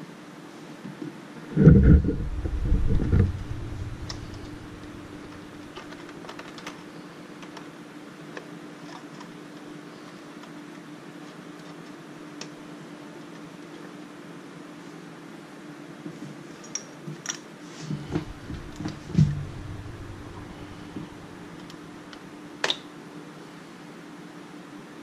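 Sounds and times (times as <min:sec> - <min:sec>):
steady low hum: 0:01.5 - 0:06.3, 0:17.8 - 0:22.6
loud low rumble: 0:01.6 - 0:06.0, 0:18.0 - 0:22.4.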